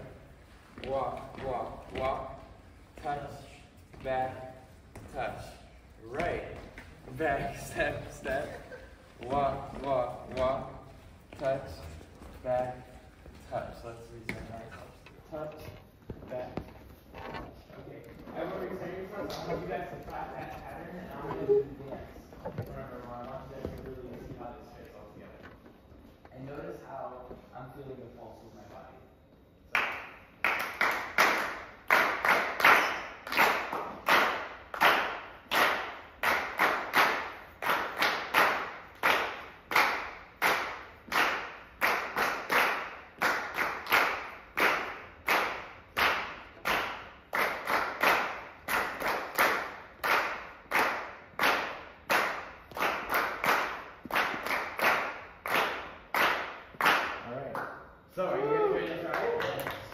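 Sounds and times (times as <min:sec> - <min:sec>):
people clapping rhythmically: 0:29.6 - 0:57.9, 0:58.9 - 0:59.9.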